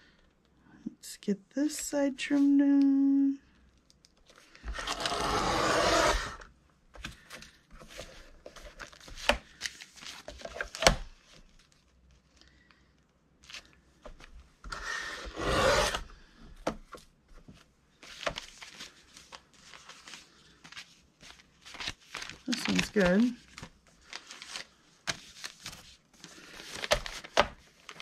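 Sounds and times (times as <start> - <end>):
paper trimmer cutting: 4.8 - 6.4, 15.2 - 16.0
paper tapping and rustling: 24.4 - 28.0.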